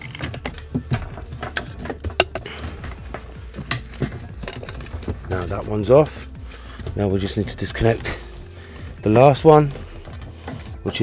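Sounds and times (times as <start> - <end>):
plastic hose fitting clicks and knocks: 0.0 - 5.5.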